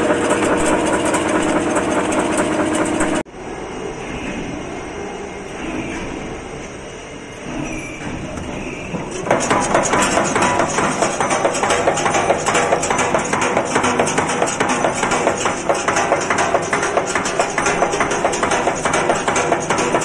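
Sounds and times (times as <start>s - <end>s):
nail making machine clattering: 0.0s - 3.2s, 8.4s - 20.0s.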